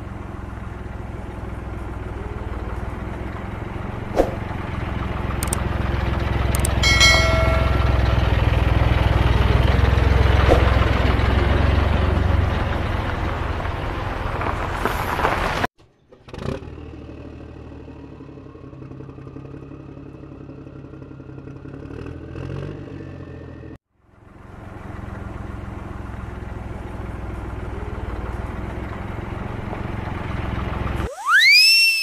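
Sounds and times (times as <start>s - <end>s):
truck engine running: 0.0s - 15.6s, 23.0s - 31.2s.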